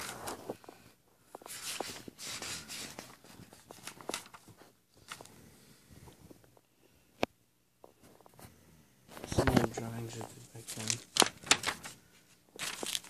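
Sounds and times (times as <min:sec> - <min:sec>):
paper rustling: 0:00.0 - 0:05.4, 0:09.1 - 0:13.0.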